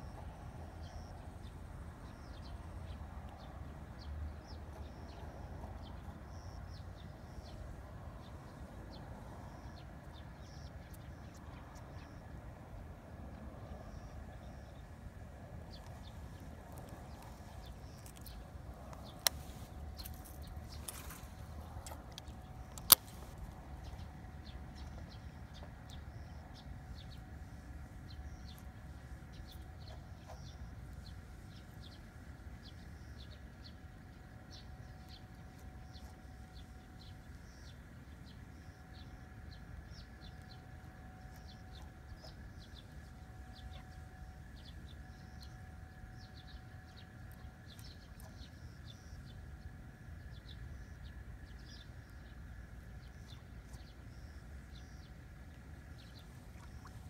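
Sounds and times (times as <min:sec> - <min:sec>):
steady low rumble: 0:00.0 - 0:57.0
birds chirping: 0:13.8 - 0:57.0.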